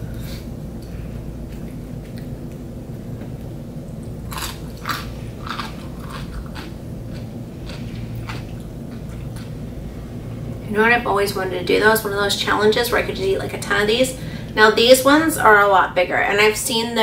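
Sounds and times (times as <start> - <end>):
low room hum: 0.0 - 17.0
chewing cucumber crunches: 4.2 - 9.6.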